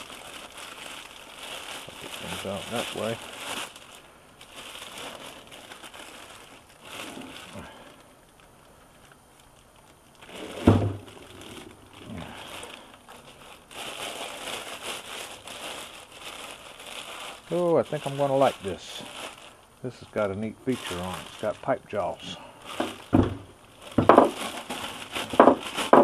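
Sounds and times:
plastic bag crinkling: 0.0s - 26.0s
heavy thump: 10.6s - 11.0s.

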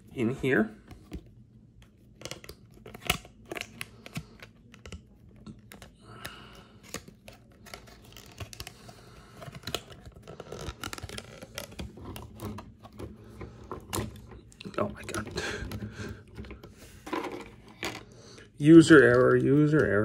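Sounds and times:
plastic piece scraping: 2.2s - 18.1s.

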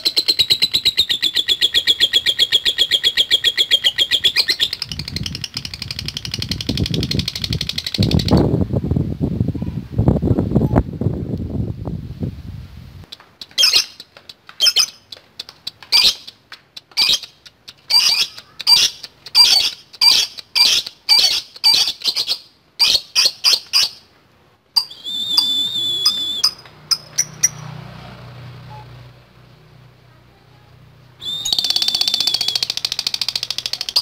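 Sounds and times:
bird whistle-like tone: 24.8s - 27.6s, 28.7s - 29.0s, 31.2s - 34.0s.

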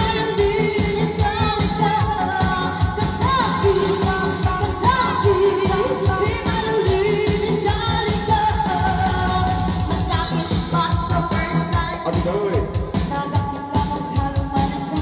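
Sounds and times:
electronic keyboard with beat: 0.0s - 15.0s
woman singing into microphone: 0.0s - 15.0s.

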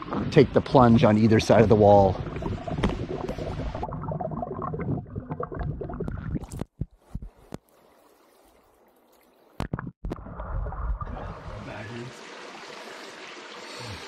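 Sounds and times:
water splashing and gurgling: 0.0s - 14.0s.

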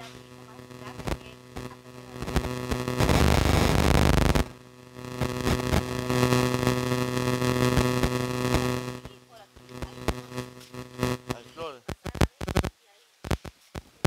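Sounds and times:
electrical hum: 0.0s - 14.0s
loud burst of static: 0.0s - 14.0s
scattered clicks: 7.7s - 13.9s.

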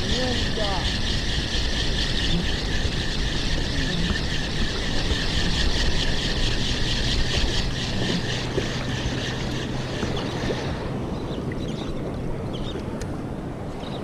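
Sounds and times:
spinning reel whirring and ticking: 0.0s - 10.3s.

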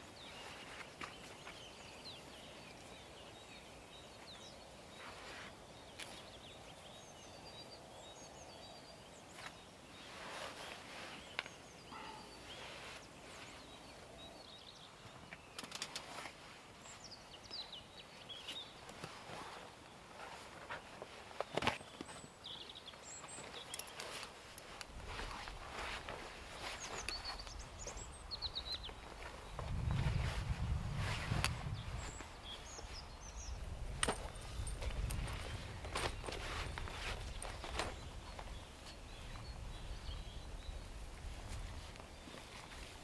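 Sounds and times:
small birds chirping: 0.0s - 43.0s
canvas rustling: 9.3s - 13.8s, 18.4s - 39.0s.

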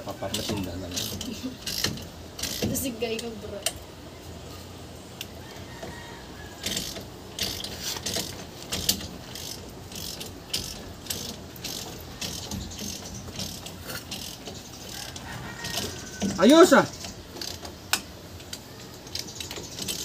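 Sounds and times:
ratchet wrench clicking: 0.3s - 2.9s, 6.6s - 20.0s.

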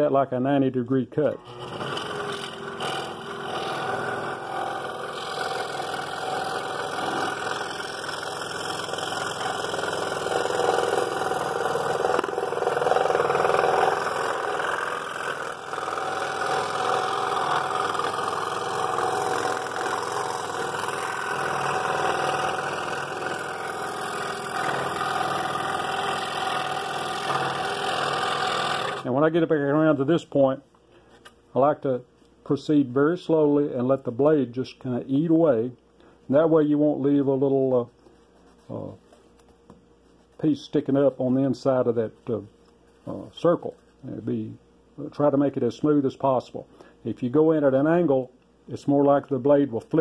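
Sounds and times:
scroll saw cutting wood: 1.3s - 29.1s.

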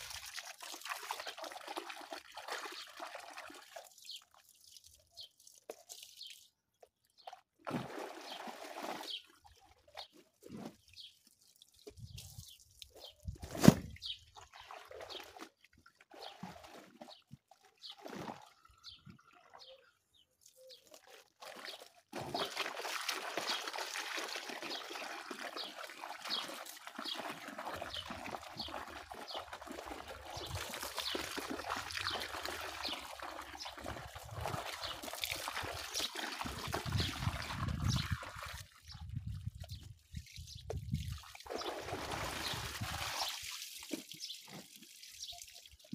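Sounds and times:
water running and splashing: 0.0s - 6.6s, 21.3s - 39.0s, 41.1s - 45.9s.

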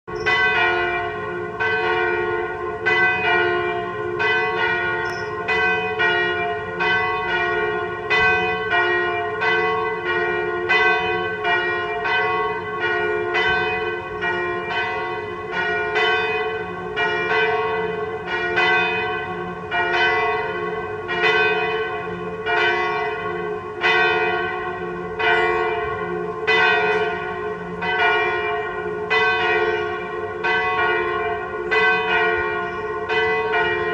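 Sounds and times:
swinging church bells ringing: 0.1s - 33.9s.

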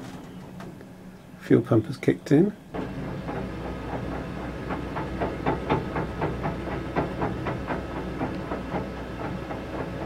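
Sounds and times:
heater fan humming: 0.0s - 10.0s
fuel pump rapid ticking: 2.8s - 10.0s.

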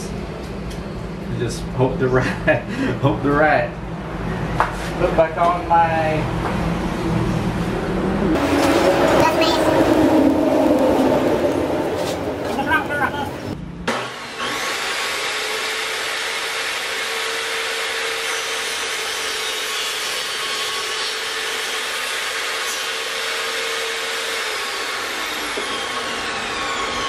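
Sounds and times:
table saw cutting wood: 8.4s - 27.0s.

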